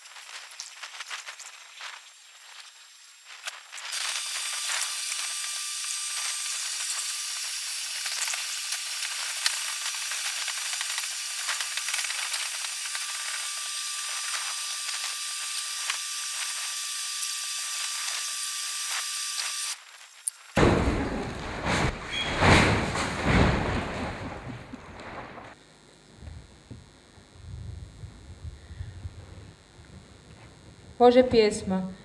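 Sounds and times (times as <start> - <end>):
plastic crackling: 0.0 - 16.8.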